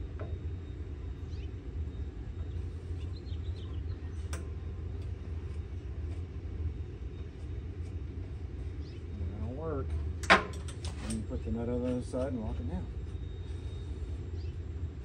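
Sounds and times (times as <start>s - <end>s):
low background rumble: 0.0s - 15.0s
faint bird chirps: 8.6s - 9.6s.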